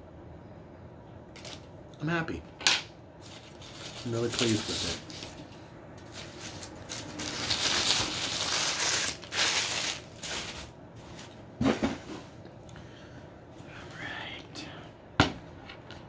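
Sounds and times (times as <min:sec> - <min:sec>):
rustling and crinkling: 0:03.2 - 0:12.4.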